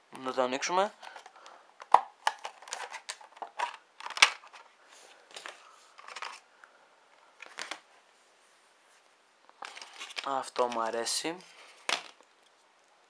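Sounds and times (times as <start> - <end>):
plastic packaging clicks and crackles: 1.0 - 4.7, 9.5 - 11.0.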